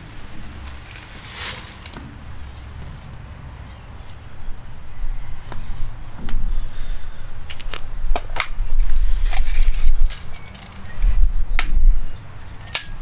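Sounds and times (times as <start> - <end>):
low rumbling handling noise: 0.0 - 13.0
tape clicks and crackles: 9.3 - 11.8.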